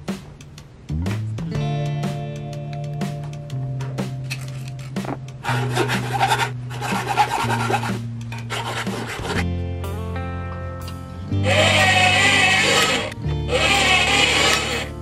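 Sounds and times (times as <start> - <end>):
file rasping on metal: 5.4 - 9.4, 11.5 - 14.9.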